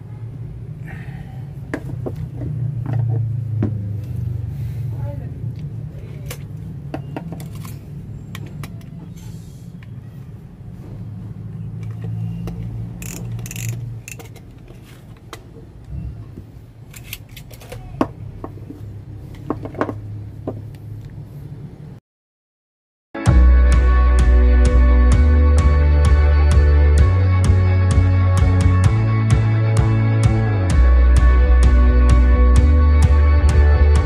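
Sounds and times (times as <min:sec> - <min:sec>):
metal tools clicking and knocking: 0:13.0 - 0:15.3.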